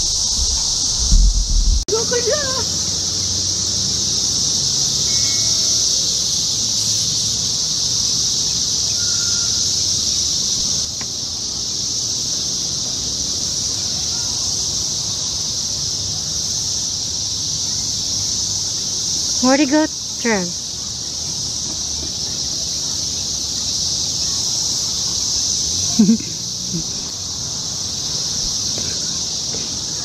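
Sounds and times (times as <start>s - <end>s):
cicadas droning: 0.0s - 30.0s.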